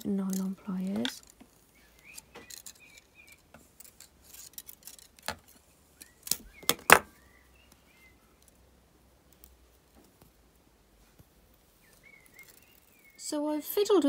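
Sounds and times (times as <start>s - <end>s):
clicks of wire worked with pliers: 0.0s - 7.0s, 9.2s - 13.2s.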